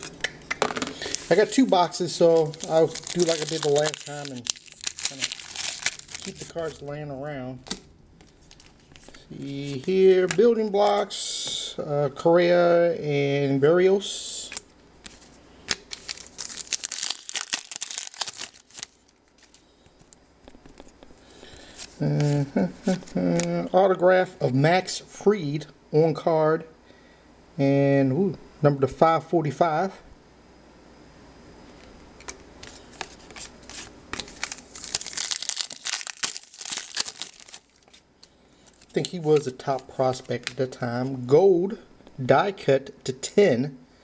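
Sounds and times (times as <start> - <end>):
foil wrapper crinkling: 1.0 - 6.9, 7.6 - 10.4, 14.5 - 23.6, 32.2 - 38.0, 38.6 - 40.8.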